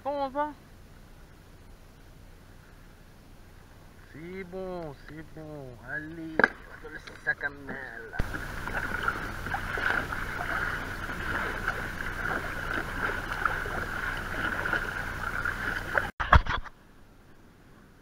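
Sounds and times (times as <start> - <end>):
water rushing along hull: 0.0 - 16.2
paddle strokes splashing: 3.9 - 16.1.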